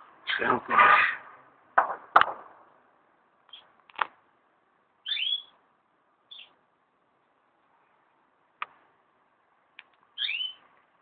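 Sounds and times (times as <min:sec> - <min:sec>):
gunshots: 0:01.8 - 0:02.6
birds chirping: 0:03.5 - 0:03.8, 0:05.0 - 0:05.6, 0:06.2 - 0:06.6, 0:10.1 - 0:10.7.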